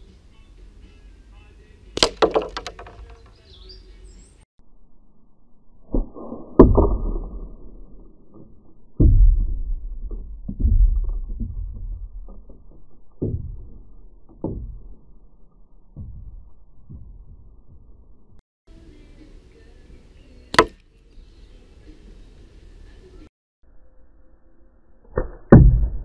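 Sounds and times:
knocks and thumps on wooden table: 2.2 - 3.2.

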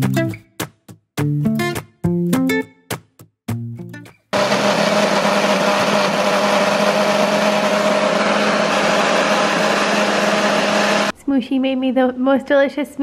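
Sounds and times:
blender motor blending fruit: 4.4 - 11.1.

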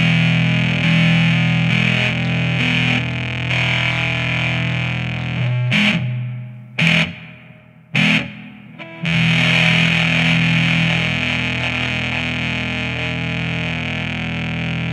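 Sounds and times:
fuzz-distorted electric guitar chords: 0.0 - 14.9.

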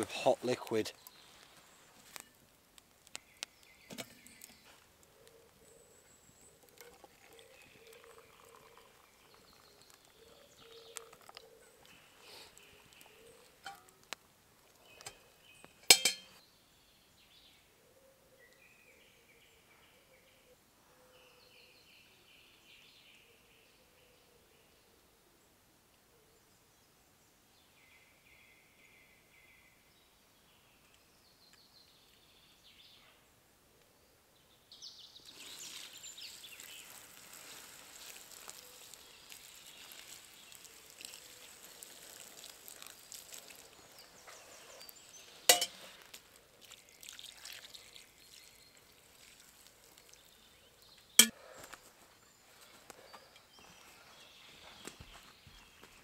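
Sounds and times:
water hissing on embers: 0.1 - 5.4, 6.1 - 15.3, 35.2 - 51.3.

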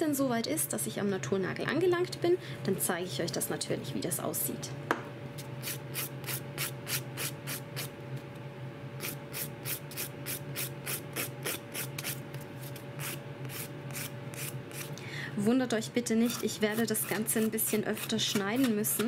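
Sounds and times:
extractor fan hum: 0.0 - 19.0
nail file rasping: 9.0 - 15.0, 16.2 - 19.0.

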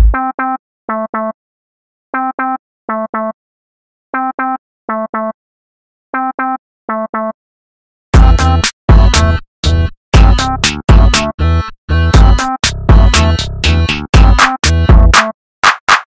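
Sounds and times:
drum machine kicks: 0.0 - 0.4, 8.2 - 9.2, 10.2 - 11.2, 12.2 - 13.2, 14.2 - 16.0.

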